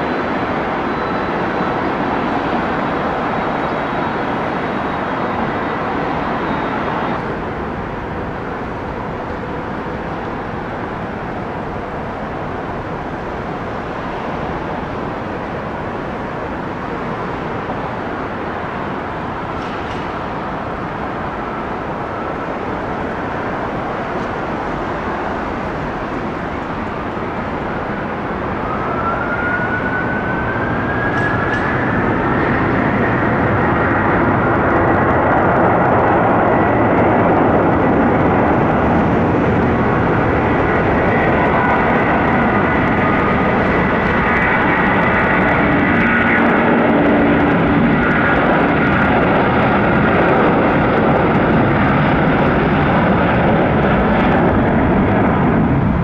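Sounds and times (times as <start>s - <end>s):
jet engine whine: 0.0s - 56.0s
jet engines running: 0.0s - 56.0s.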